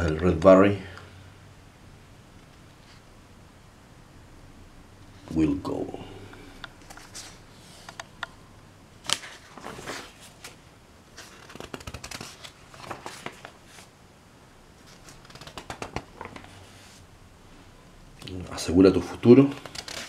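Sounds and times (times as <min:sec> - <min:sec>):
paper pages rustling and crackling: 0:06.8 - 0:08.0, 0:09.0 - 0:13.9, 0:14.8 - 0:17.0, 0:19.1 - 0:20.0.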